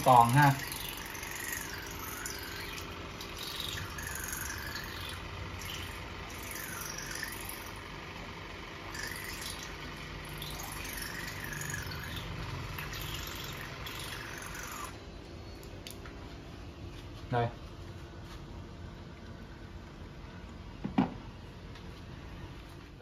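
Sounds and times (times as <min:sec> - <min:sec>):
thin wavering tone: 0:00.0 - 0:07.9, 0:08.8 - 0:15.7
water flosser pump buzz: 0:00.0 - 0:15.2.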